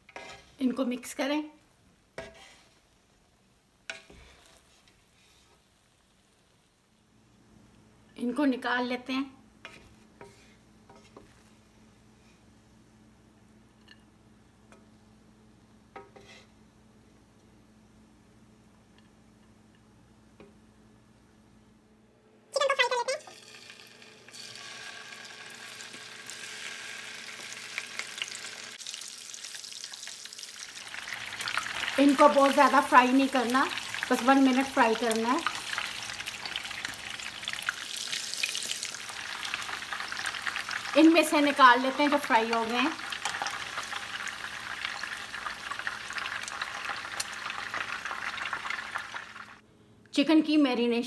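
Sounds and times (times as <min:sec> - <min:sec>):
chicken sizzling in hot oil: 0:23.2 - 0:49.6.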